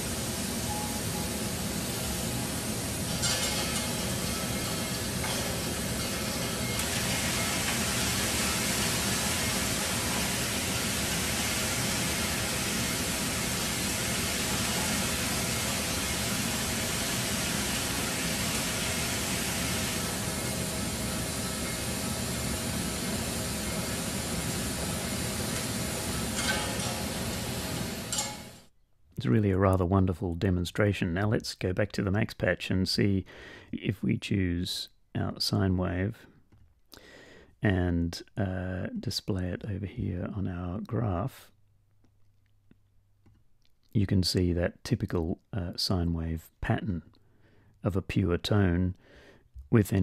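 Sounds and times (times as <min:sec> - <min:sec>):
spray can hissing: 0:01.4 - 0:28.2.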